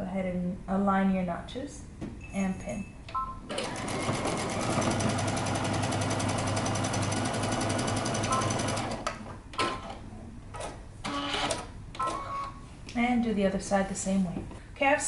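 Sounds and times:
sewing machine stitching: 0:03.5 - 0:09.1.

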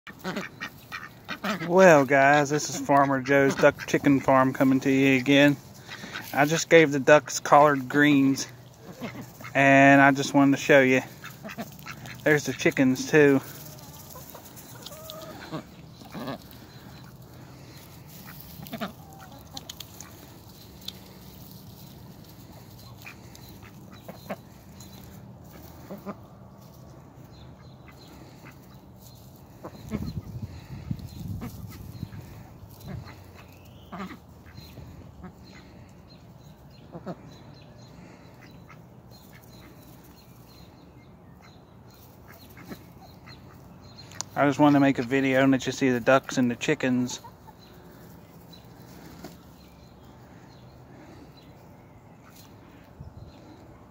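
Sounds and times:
ducks quacking: 0:00.1 - 0:40.6, 0:41.3 - 0:51.6.

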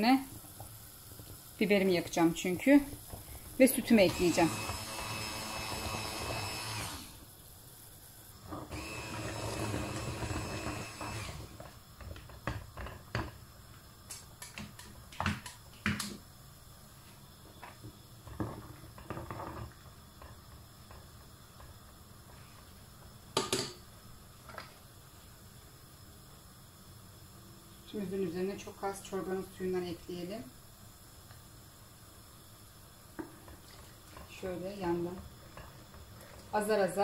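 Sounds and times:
stick blender whirring: 0:03.7 - 0:07.3, 0:08.4 - 0:11.8.

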